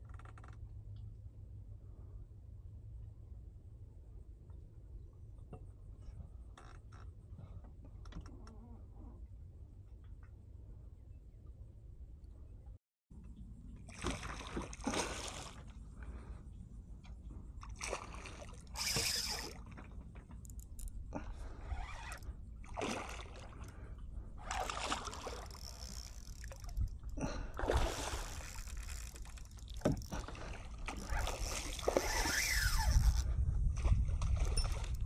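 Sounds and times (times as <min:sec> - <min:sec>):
water splashing and sloshing: 0:13.6 - 0:35.0.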